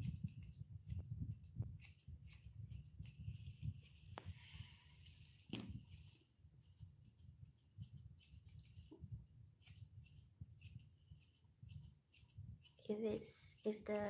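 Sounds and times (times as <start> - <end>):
scissors snipping fur: 0.0 - 3.2, 6.6 - 9.0, 9.6 - 14.0.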